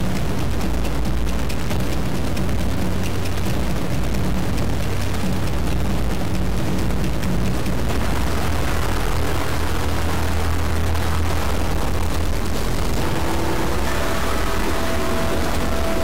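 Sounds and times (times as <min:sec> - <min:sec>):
loud roaring rumble: 0:00.0 - 0:16.0
steady tones: 0:00.0 - 0:16.0.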